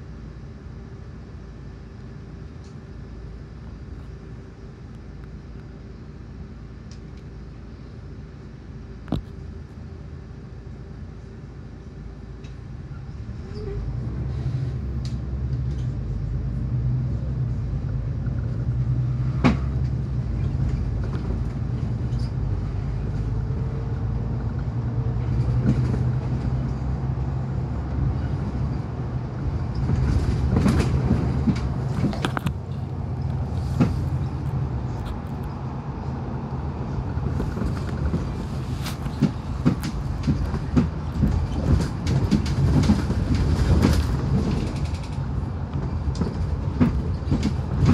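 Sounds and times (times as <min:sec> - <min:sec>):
bus engine drone: 0:00.0 - 0:47.9
knocks and rattles: 0:37.5 - 0:47.9.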